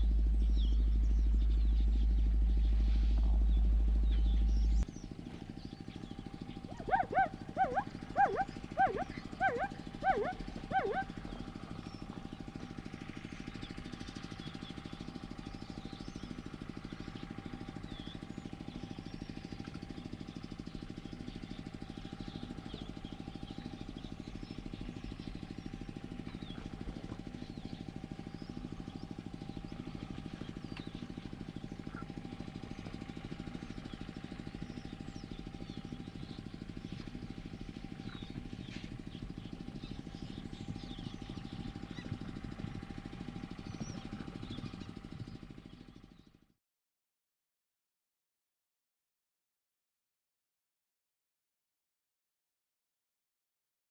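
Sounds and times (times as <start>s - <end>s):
steady low hum: 0.0s - 45.6s
faint bird chirps: 5.8s - 12.1s
animal calls dropping in pitch: 6.7s - 11.1s.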